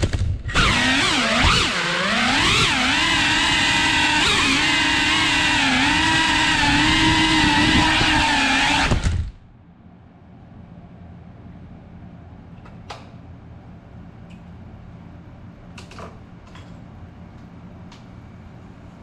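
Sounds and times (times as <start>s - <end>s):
quadcopter motors whining: 0.5s - 9.4s.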